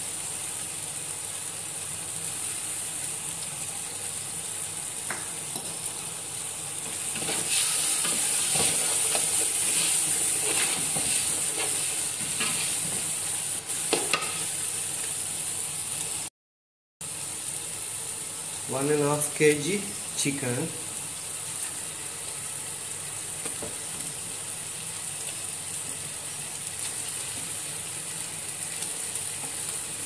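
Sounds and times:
masala sizzling in a pot: 0:00.0 - 0:16.3, 0:17.0 - 0:30.0.

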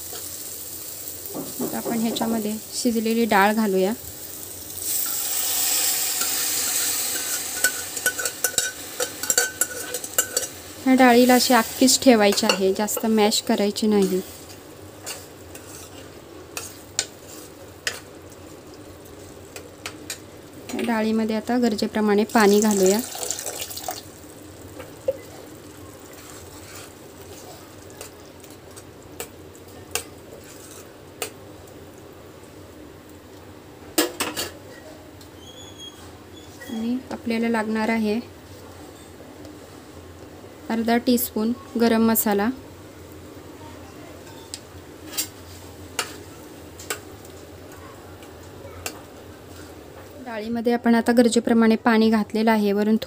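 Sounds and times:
ladle stirring in a pan: 0:04.3 - 0:13.2, 0:13.9 - 0:20.3, 0:22.5 - 0:31.4, 0:45.0 - 0:47.6
spoon clinking against pan: 0:07.2 - 0:10.5.

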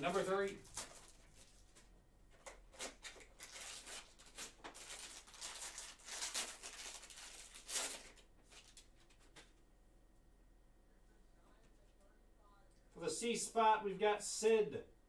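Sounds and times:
card pack wrapper tearing: 0:00.6 - 0:01.5, 0:02.4 - 0:08.9.

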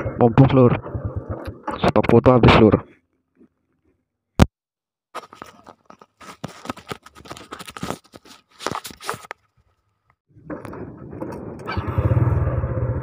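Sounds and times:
motorcycle engine starting: 0:00.0 - 0:01.8, 0:10.5 - 0:13.0.

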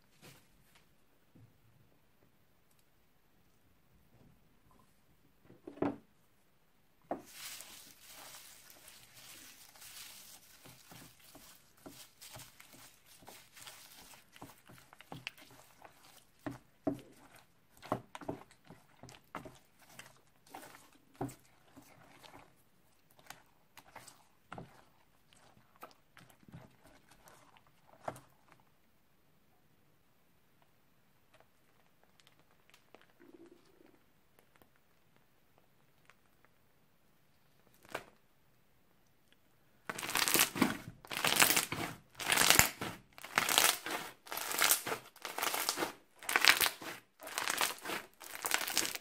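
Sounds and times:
slime squelching: 0:07.1 - 0:28.7, 0:39.9 - 0:49.0
crinkly rustle of dry pieces: 0:07.2 - 0:17.4, 0:39.9 - 0:49.0.

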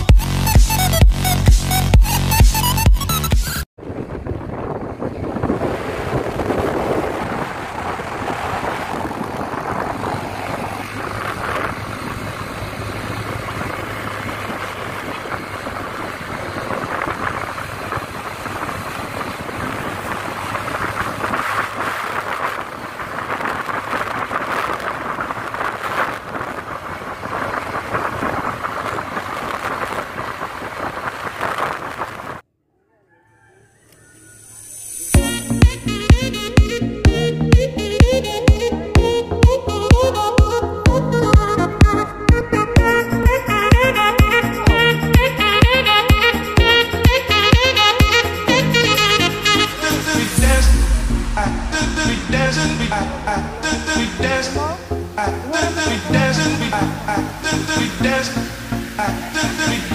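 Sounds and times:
motorcycle road noise: 0:00.0 - 0:59.9
wind rushing over microphone: 0:03.8 - 0:32.4, 0:34.5 - 0:59.9
motorcycle engine running: 0:09.8 - 0:23.1.

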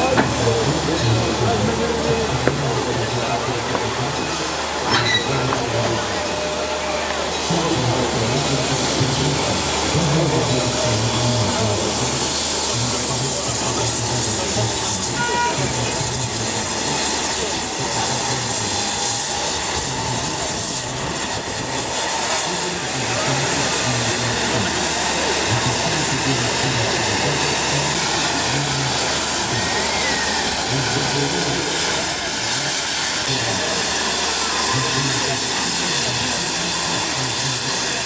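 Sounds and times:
steam hissing from locomotive: 0:00.0 - 0:38.0.

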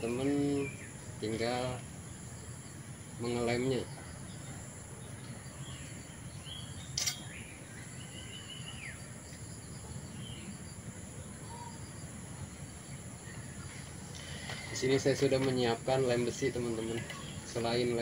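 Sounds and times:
short bird calls: 0:06.8 - 0:09.0.

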